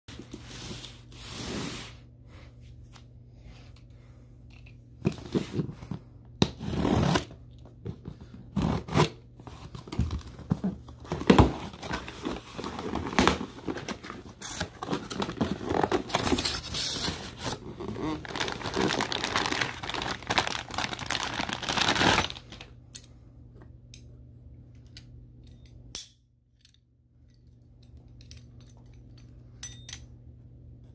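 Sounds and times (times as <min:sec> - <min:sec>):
cardboard tearing: 0:11.2 - 0:22.6.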